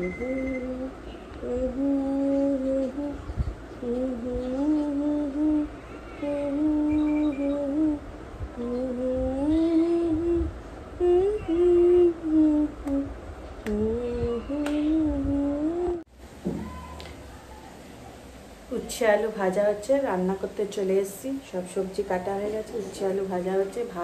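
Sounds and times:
woman humming a lullaby: 0.0s - 8.0s, 8.6s - 16.1s.

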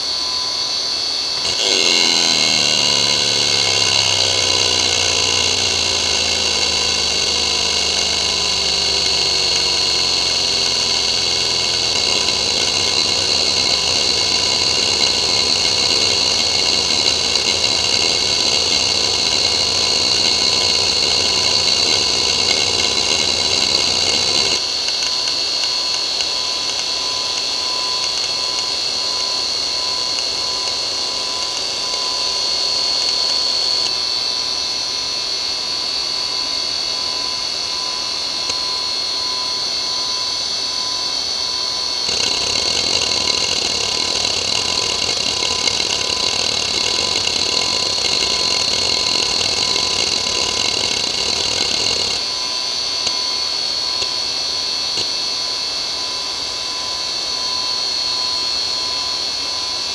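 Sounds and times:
hard drive high whine: 0.0s - 59.9s
hard drive seek chatter: 1.4s - 34.0s, 42.0s - 52.3s.

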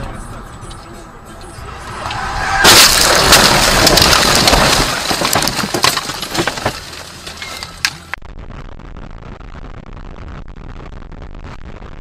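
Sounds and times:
windscreen cracking: 1.7s - 11.9s
car crashing into bushes: 2.0s - 8.0s.

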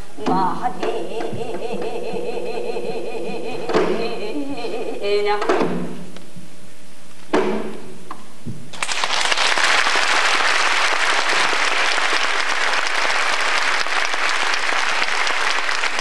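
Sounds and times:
audience applause: 8.7s - 16.0s.

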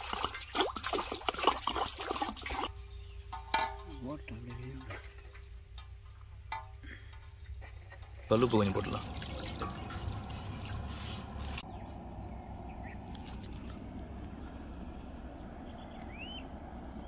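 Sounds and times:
water splashing into metal basin: 0.0s - 2.7s, 8.3s - 11.6s
outdoor background: 0.0s - 17.0s
bird chirp: 2.7s - 4.7s, 9.3s - 17.0s.

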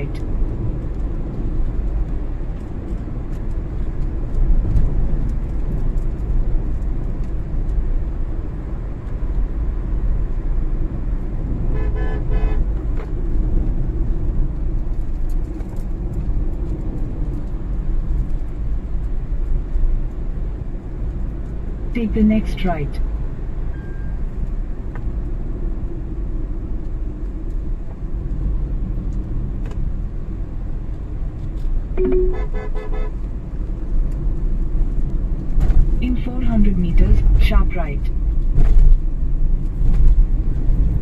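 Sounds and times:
engine and tyre rumble in cabin: 0.0s - 41.0s
car horn: 11.7s - 12.6s, 32.0s - 33.2s.

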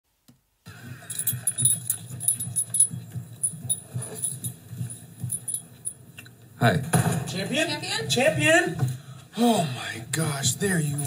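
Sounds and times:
small metal pieces jingling: 1.1s - 6.0s.

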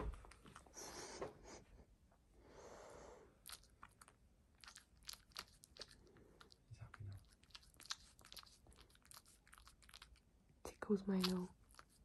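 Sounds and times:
cat licking and chewing: 0.0s - 1.2s, 3.3s - 12.0s
soft hushing breath: 0.6s - 3.4s.

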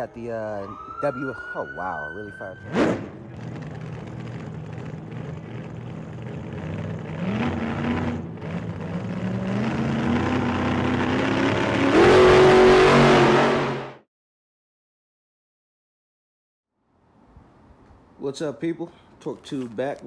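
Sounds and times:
car engine accelerating: 2.7s - 14.0s.

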